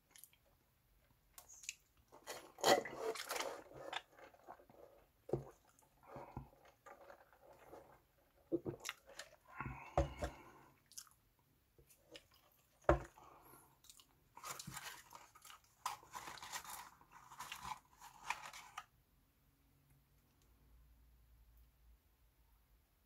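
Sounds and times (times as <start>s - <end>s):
sachet tearing and paper crinkling: 2.1s - 4.8s, 14.4s - 18.9s.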